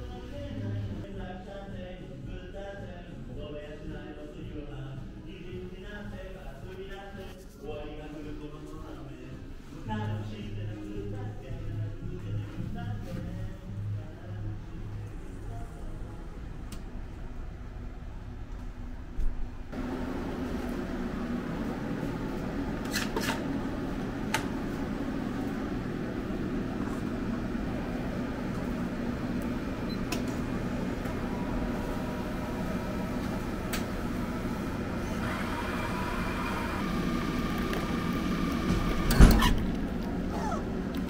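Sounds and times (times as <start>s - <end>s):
machines and ventilation hum: 0.0s - 41.0s
coffee machine running: 19.8s - 41.0s.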